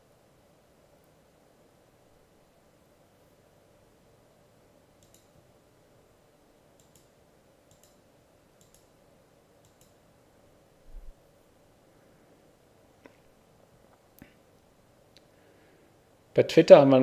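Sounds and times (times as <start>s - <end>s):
steady room hum: 0.0s - 17.0s
faint computer mouse clicks: 5.0s - 5.4s, 6.8s - 8.0s, 8.6s - 8.9s, 9.6s - 10.0s.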